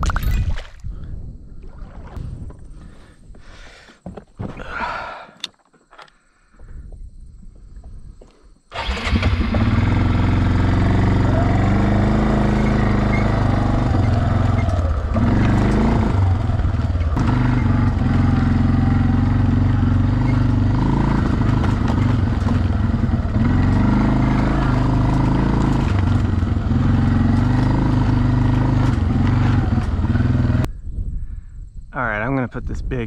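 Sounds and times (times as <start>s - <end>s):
atv engine running: 8.7s - 30.7s
knocks from bumps: 21.1s - 24.2s.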